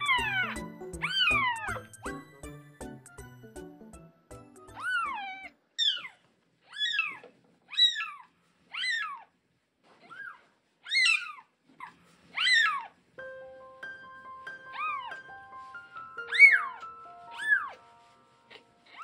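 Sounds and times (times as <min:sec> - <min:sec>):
kitten meowing: 0:00.0 - 0:01.8, 0:04.8 - 0:08.2.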